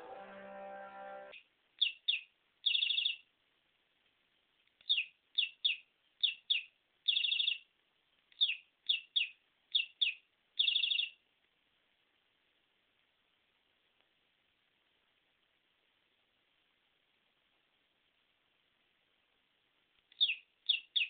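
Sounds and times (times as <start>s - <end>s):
trilled bird chirps: 0.0s - 3.3s, 4.8s - 7.7s, 8.4s - 11.2s, 20.2s - 21.0s
short high bird chirps: 1.3s - 3.2s, 4.9s - 7.6s, 8.4s - 11.2s, 20.2s - 21.0s.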